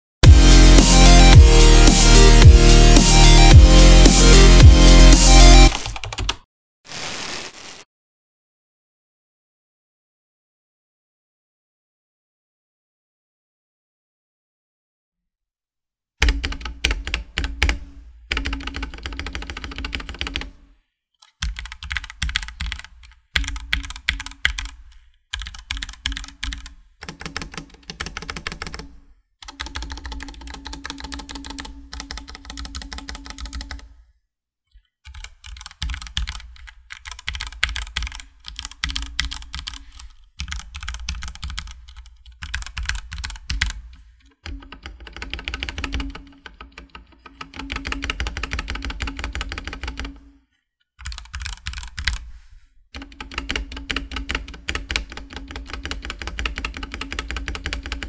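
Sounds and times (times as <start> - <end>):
mechanical keyboard typing: 5.7 - 6.4, 16.2 - 20.5, 21.4 - 33.8, 35.1 - 50.2, 51.0 - 52.2, 53.0 - 58.0.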